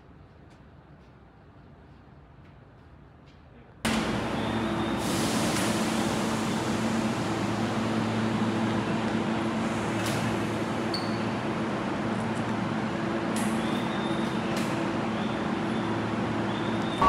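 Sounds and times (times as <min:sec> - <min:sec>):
vehicle running noise: 0:03.9 - 0:17.0.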